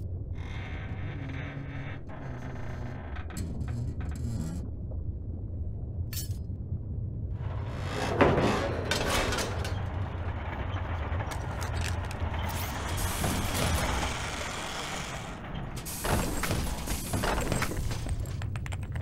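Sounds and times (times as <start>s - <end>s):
low motor rumble: 0.0s - 18.6s
metallic clanks and clicks: 8.2s - 14.1s.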